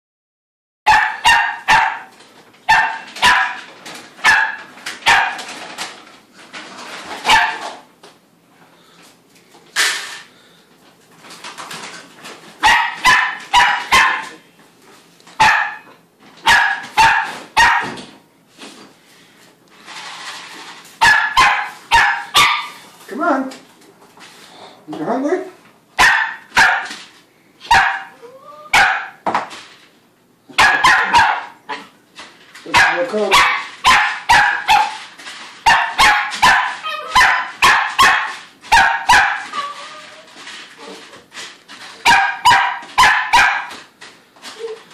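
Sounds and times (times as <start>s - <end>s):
puppy barking sharply: 0.9s - 2.1s, 2.7s - 5.5s, 7.2s - 7.8s, 12.6s - 14.4s, 15.4s - 18.0s, 21.0s - 22.8s, 26.0s - 27.0s, 27.7s - 29.2s, 30.5s - 31.8s, 32.7s - 35.0s, 35.6s - 39.6s, 42.0s - 43.8s
puppy whining: 28.0s - 28.8s, 36.8s - 37.3s, 39.3s - 41.2s, 44.5s - 44.9s.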